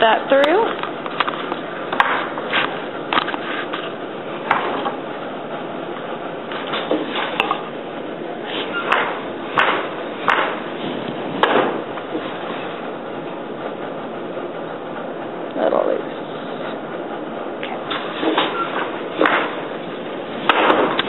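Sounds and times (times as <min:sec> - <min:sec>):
wooden loom knocking and clacking: 0:04.4 - 0:05.0, 0:08.8 - 0:12.3, 0:17.9 - 0:19.7, 0:20.5 - 0:21.0.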